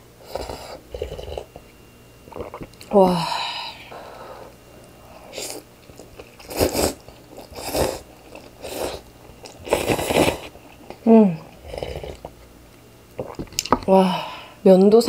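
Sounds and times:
person slurping noodles: 5.3 - 5.6, 6.4 - 10.6.

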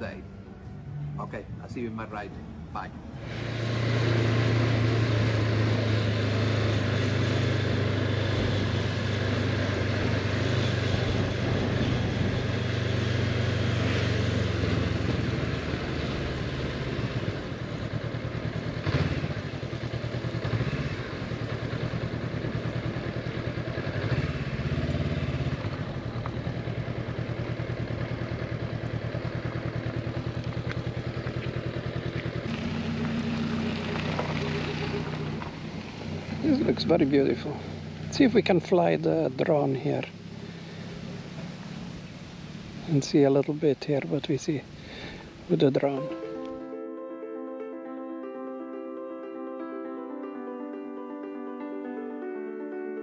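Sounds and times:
motorcycle engine running: 3.2 - 43.0.

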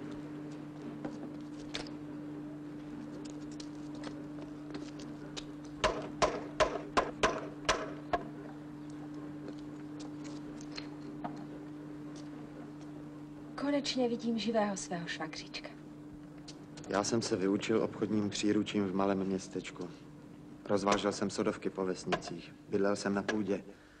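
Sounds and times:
steady low hum: 0.0 - 24.0
wood chopping knocks: 5.8 - 8.3.

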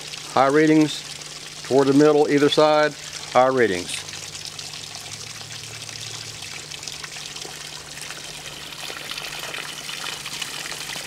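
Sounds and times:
water pouring and trickling: 0.0 - 11.0.

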